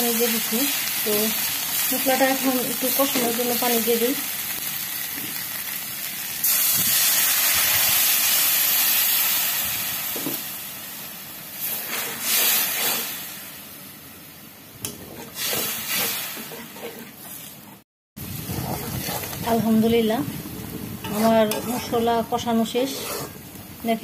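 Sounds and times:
sizzling in hot oil: 0.0 - 17.6, 18.2 - 24.0
metal spatula scraping a wok: 11.6 - 13.2, 14.9 - 17.8, 18.4 - 19.6, 21.0 - 23.4.

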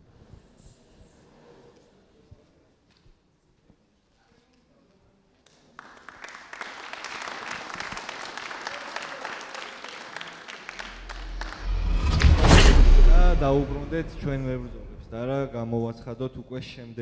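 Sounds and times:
audience applauding: 5.7 - 11.7.

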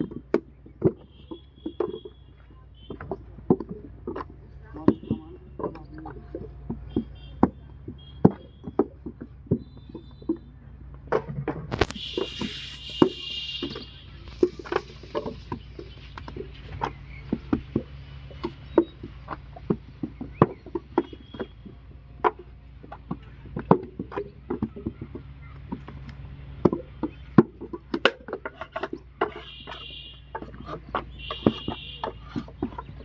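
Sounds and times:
molds knocked on ground: 11.0 - 33.0.

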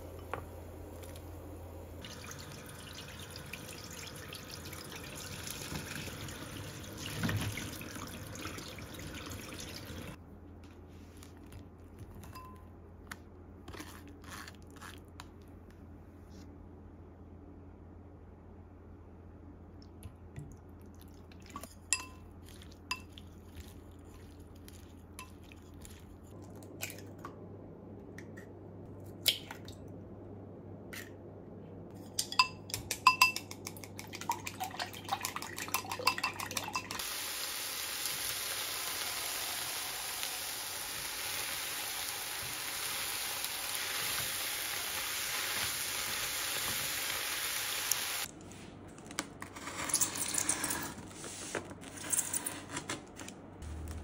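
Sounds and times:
chopsticks beating eggs in glass bowl: 32.3 - 37.0.

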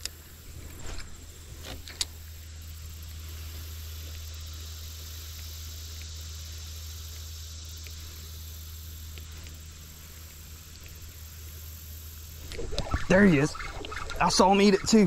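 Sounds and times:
sharp clicks: 4.0 - 11.2, 12.4 - 15.0.

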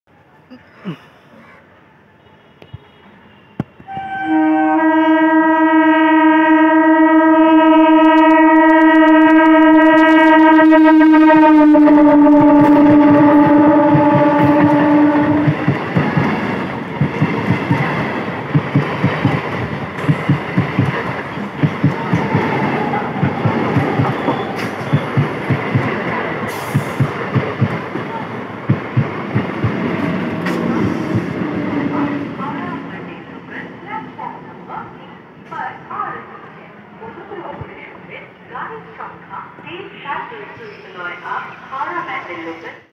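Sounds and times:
train horn blast: 2.2 - 15.6, 22.0 - 25.3
train wheels clattering over rail joints: 15.5 - 31.4.

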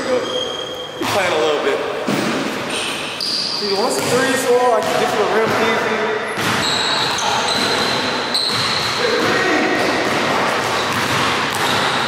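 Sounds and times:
sneakers squeaking: 0.0 - 12.0.

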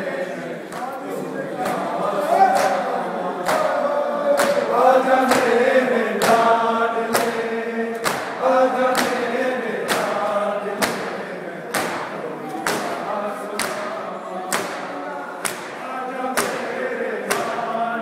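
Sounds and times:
men chanting in unison: 0.0 - 18.0
hands slapping chests: 3.4 - 3.8, 4.4 - 5.6, 7.1 - 10.2, 10.8 - 13.0, 13.6 - 13.9, 14.5 - 15.8, 16.4 - 17.6.

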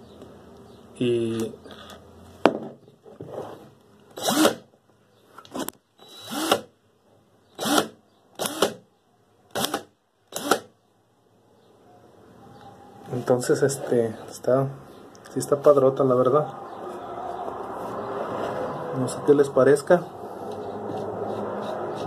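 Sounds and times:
cordless drill motor whirring: 4.1 - 4.6, 5.5 - 6.7, 7.6 - 8.8, 9.5 - 10.7.

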